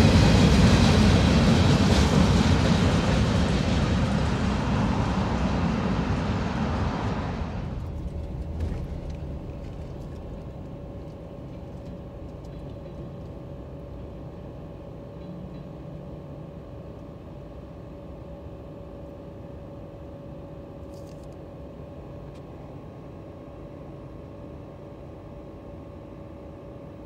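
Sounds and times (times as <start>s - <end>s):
freight train rumbling on rails: 0.0s - 16.8s
faint steady whine: 4.3s - 27.0s.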